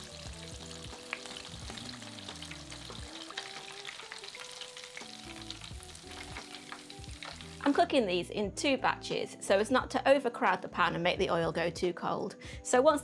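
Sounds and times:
chicken deep frying in oil: 0.0 - 7.8
soft background music: 0.0 - 13.0.

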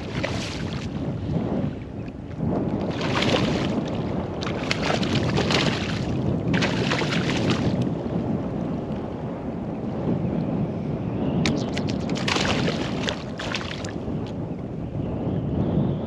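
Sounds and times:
fish splashing in water: 0.0 - 0.9, 2.8 - 7.8, 11.5 - 14.0
wind on microphone: 0.0 - 16.0.

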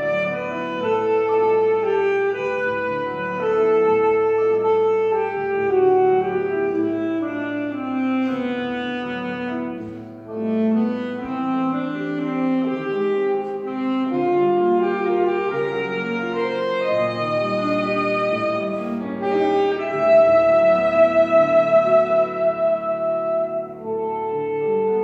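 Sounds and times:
alto saxophone melody: 0.0 - 25.0
piano accompaniment: 0.0 - 25.0.

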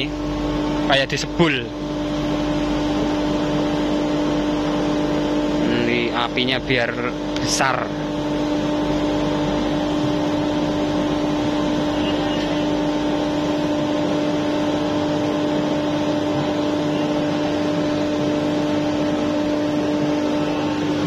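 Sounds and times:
electric blower humming: 8.1 - 21.0.

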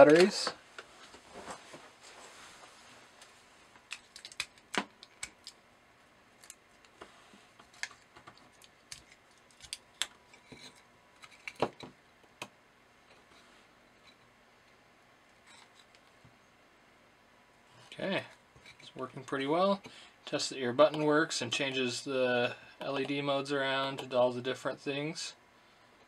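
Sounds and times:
circuit board handled: 3.8 - 5.6, 6.4 - 11.9.

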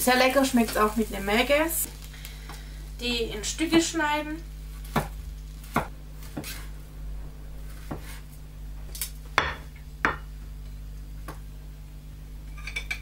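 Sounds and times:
tongs and plate clattering: 12.5 - 13.0.

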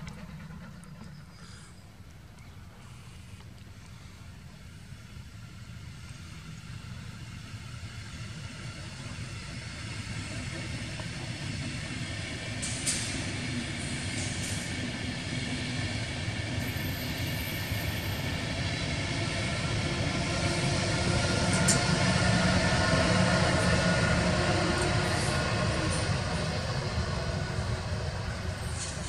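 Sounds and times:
train rumbling past on rails: 0.0 - 29.0.

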